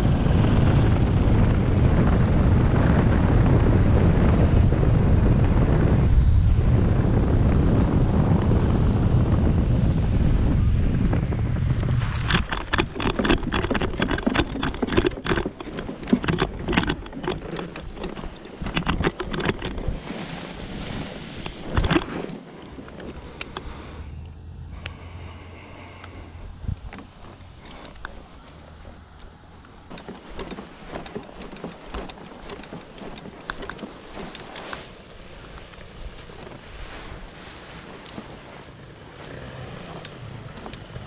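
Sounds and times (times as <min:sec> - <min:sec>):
wind rushing over microphone: 0:00.0 - 0:41.0
motor frame rattling: 0:12.0 - 0:20.2, 0:26.6 - 0:41.0
footfalls on grass: 0:29.9 - 0:39.9.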